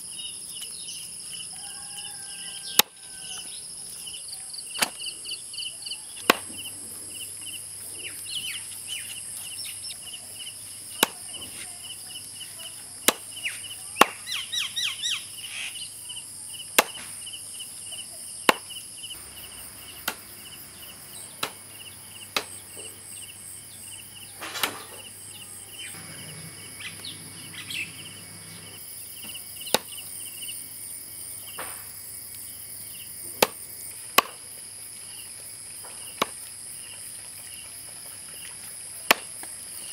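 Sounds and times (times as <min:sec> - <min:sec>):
knife chopping on wooden block: 0:16.8 - 0:17.0.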